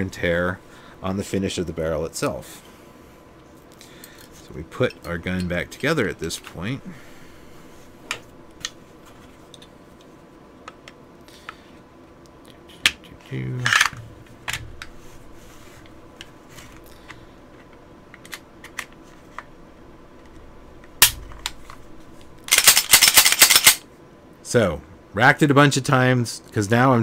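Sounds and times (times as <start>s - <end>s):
pistol parts clicking: 22.4s - 23.8s.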